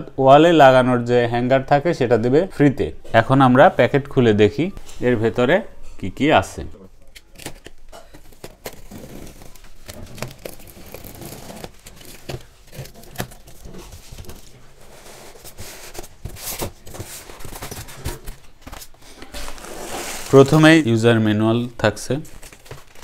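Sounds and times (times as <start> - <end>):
plastic packaging crinkling: 7.0 - 23.0
knife slitting packing tape: 8.4 - 13.5.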